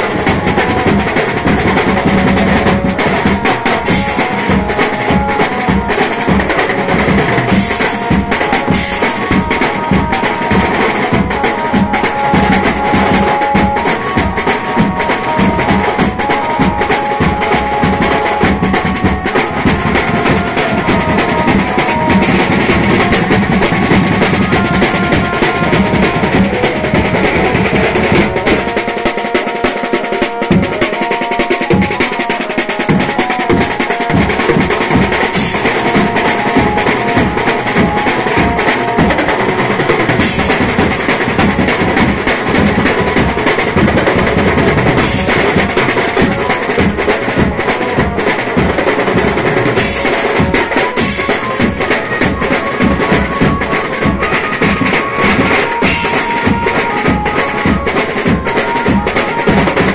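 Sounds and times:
fast drumming with cymbals: 0:00.0 - 0:59.9.

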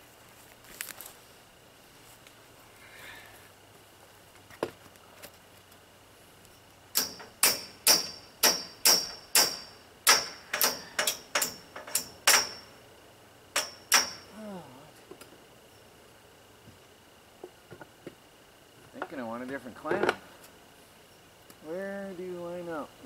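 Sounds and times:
hammer striking metal pipe: 0:07.0 - 0:12.7, 0:13.6 - 0:14.3.

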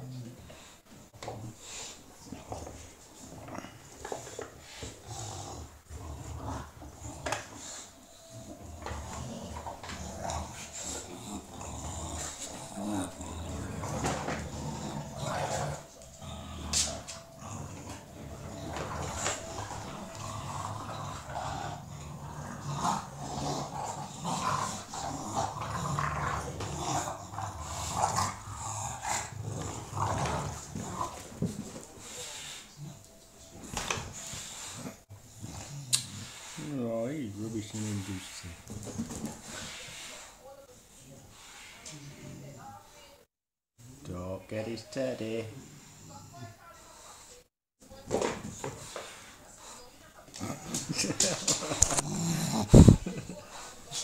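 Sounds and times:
dogs growling and grunting: 0:00.0 - 0:42.8, 0:45.3 - 0:46.6, 0:48.1 - 0:54.0.

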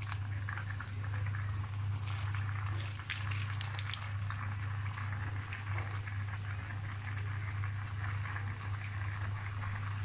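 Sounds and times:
paste sizzling and crackling: 0:00.0 - 0:10.0.

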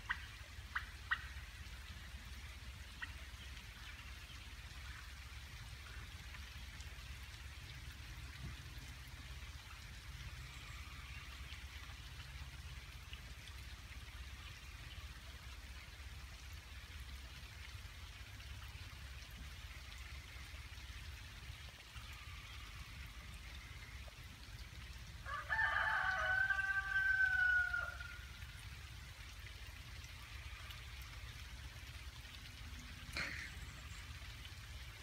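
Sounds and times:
rain falling: 0:00.0 - 0:35.0
rooster crowing: 0:25.2 - 0:28.2.

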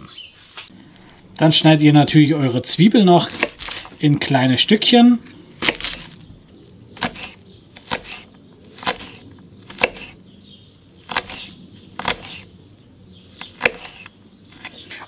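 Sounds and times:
knife chopping on wooden board: 0:03.3 - 0:03.9, 0:07.0 - 0:10.2, 0:11.0 - 0:12.5, 0:13.4 - 0:14.8.

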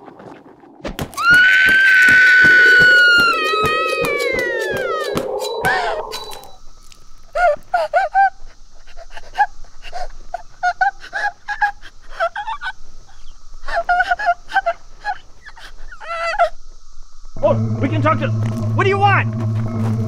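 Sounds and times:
woman shrieking in pain: 0:01.2 - 0:06.4, 0:13.7 - 0:16.6.

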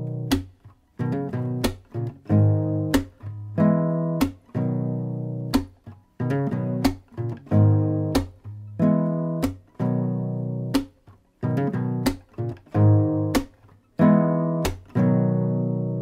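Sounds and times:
strummed guitar chords: 0:00.0 - 0:16.0.

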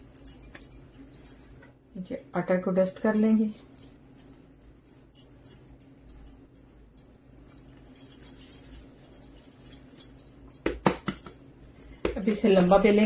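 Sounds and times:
faint steady hum: 0:00.0 - 0:13.0
metallic jingling: 0:00.0 - 0:13.0.

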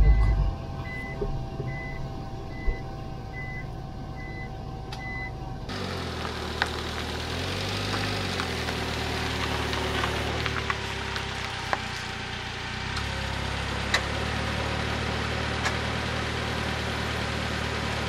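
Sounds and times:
steady hum: 0:00.0 - 0:05.7
van engine idling: 0:00.0 - 0:18.0.

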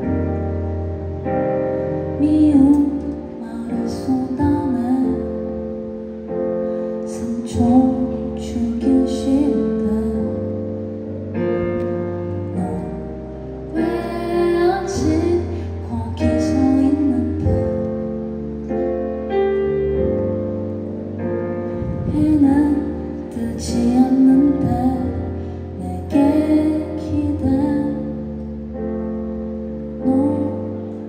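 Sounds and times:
piano chords on keyboard: 0:00.0 - 0:31.0
woman singing slow song: 0:02.0 - 0:06.0, 0:06.9 - 0:11.0, 0:12.4 - 0:18.3, 0:21.8 - 0:28.6, 0:29.8 - 0:31.0.

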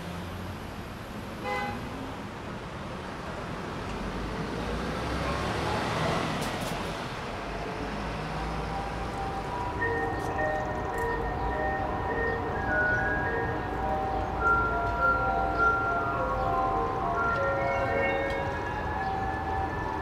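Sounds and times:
city street traffic: 0:00.0 - 0:20.0.

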